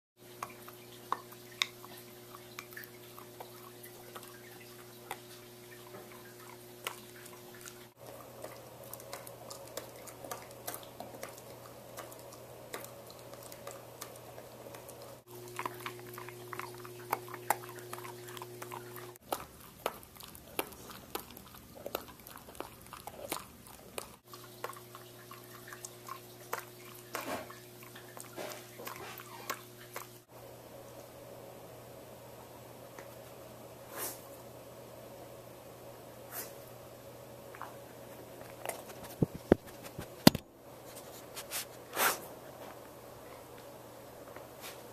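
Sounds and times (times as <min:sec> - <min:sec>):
dog chewing crunchy treats: 0:05.1 - 0:30.1.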